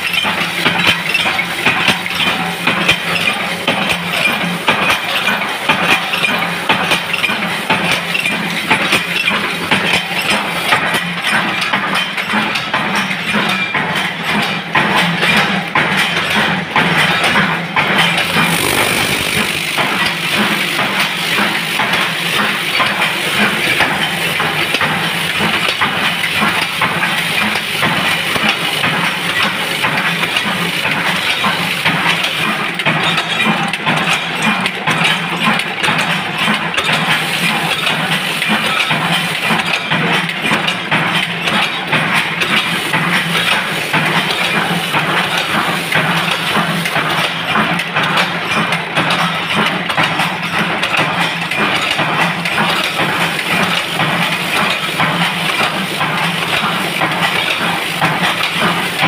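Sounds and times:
fast metallic clatter: 0:00.0 - 0:31.4
machine mechanical hum: 0:17.6 - 0:31.6.

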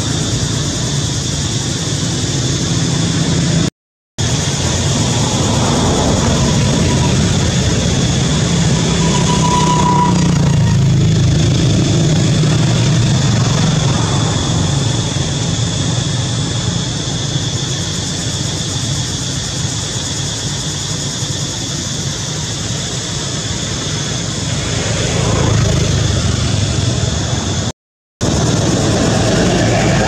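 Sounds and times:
high-pitched hum: 0:00.0 - 0:19.8
engine rumbling: 0:00.0 - 0:30.0.

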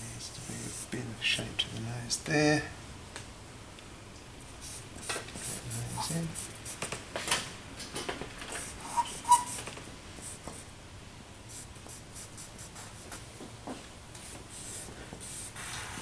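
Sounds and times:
charcoal scratching on paper: 0:08.6 - 0:09.6
sharp squeaks: 0:08.8 - 0:09.6.

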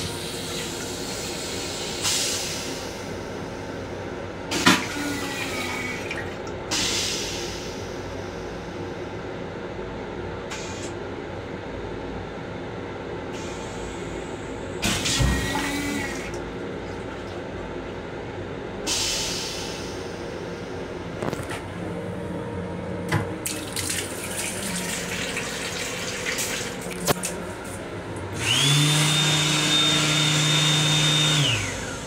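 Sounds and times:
toilet flushing water rushes: 0:00.0 - 0:03.0, 0:04.5 - 0:06.9, 0:23.4 - 0:27.4.

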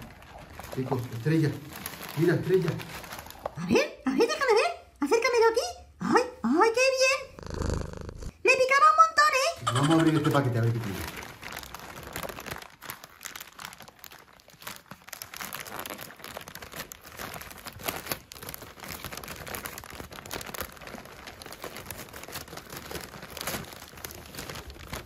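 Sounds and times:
wrapping paper crinkling: 0:00.0 - 0:03.6, 0:09.6 - 0:25.0.

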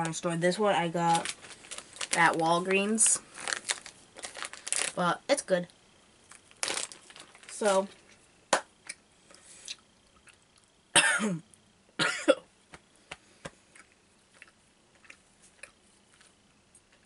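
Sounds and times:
person coughing: 0:11.0 - 0:11.4, 0:12.0 - 0:12.5.

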